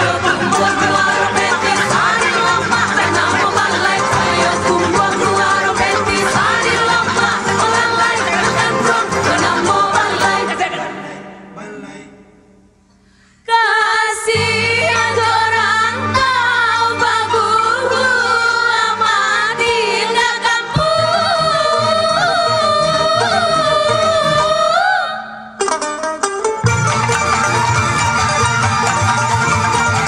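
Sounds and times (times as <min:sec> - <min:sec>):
women singing: 0:00.0 - 0:11.2, 0:13.5 - 0:25.4.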